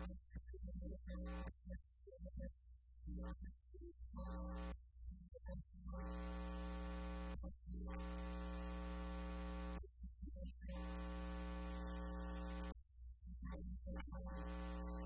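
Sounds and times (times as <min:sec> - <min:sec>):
steady low hum: 0:10.8 - 0:12.8.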